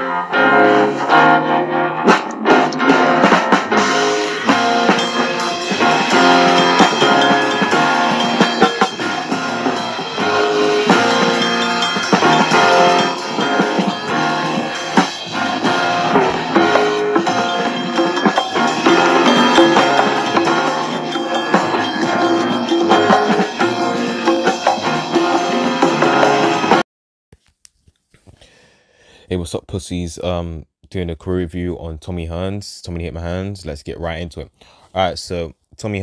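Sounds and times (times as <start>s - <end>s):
music with guitar and drums: 0.0s - 26.8s.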